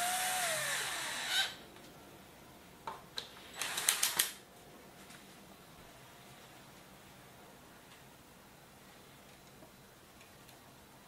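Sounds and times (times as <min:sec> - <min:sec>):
cordless drill running: 0:00.0 - 0:01.6, 0:03.6 - 0:04.1.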